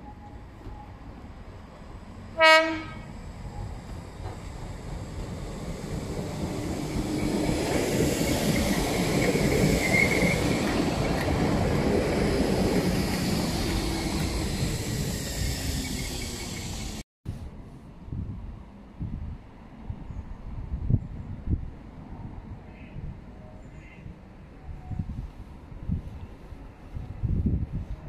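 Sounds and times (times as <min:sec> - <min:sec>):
electric train passing: 0:00.0 - 0:17.0.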